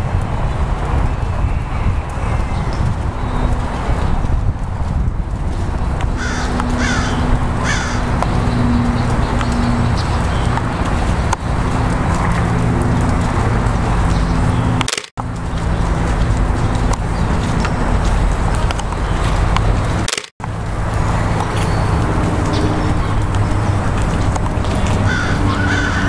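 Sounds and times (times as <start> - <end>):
horse cantering on sand: 0.0 - 26.0
crow cawing: 6.2 - 8.1, 25.0 - 26.0.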